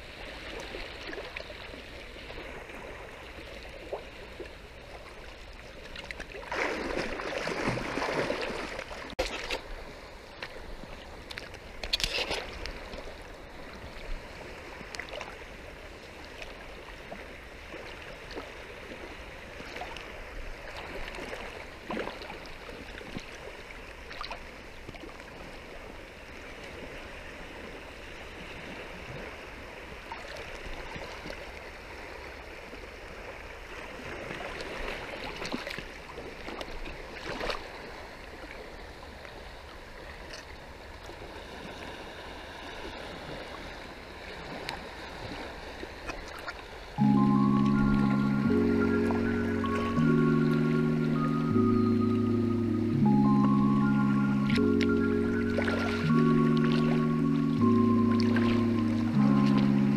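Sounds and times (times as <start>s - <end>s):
seawater sloshing and lapping: 0.0s - 27.0s, 30.0s - 47.0s
water splashing: 0.0s - 27.0s, 28.6s - 38.8s, 42.6s - 59.9s.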